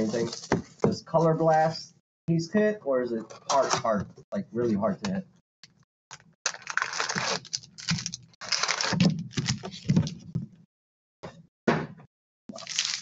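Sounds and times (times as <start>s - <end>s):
foil card packs rustling: 0.0s - 0.5s, 6.5s - 10.1s, 12.6s - 13.0s.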